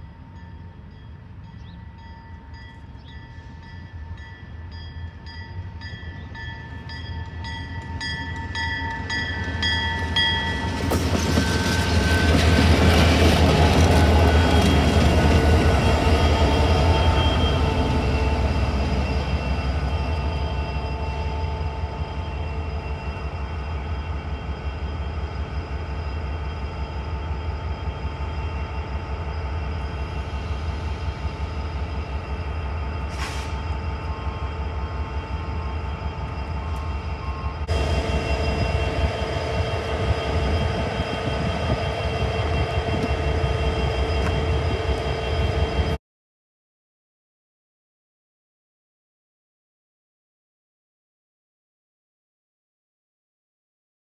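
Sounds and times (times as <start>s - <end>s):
diesel locomotive engine rumble: 0.0s - 46.0s
wheel and rail noise: 0.0s - 46.0s
locomotive horn: 13.4s - 23.4s.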